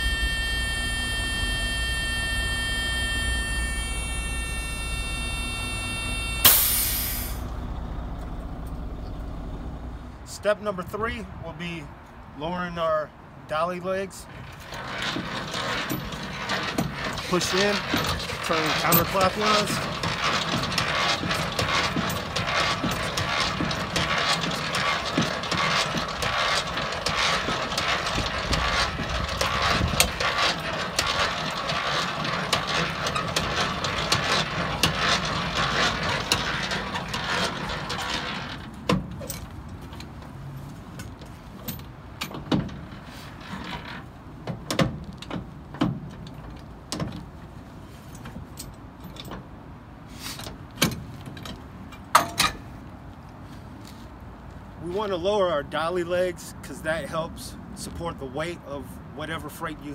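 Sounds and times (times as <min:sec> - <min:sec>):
hand crank gear clatter: 0:14.6 - 0:40.1.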